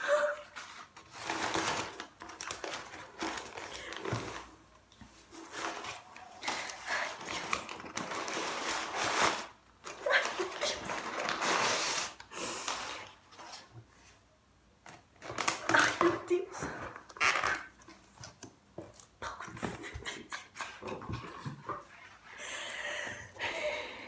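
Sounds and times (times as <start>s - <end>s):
packing paper rustling: 0.4s - 13.7s.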